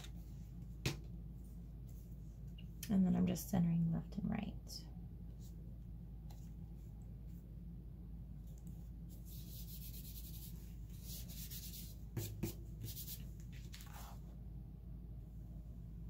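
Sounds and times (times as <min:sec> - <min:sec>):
hand rubbing paper: 0:09.1 - 0:14.2.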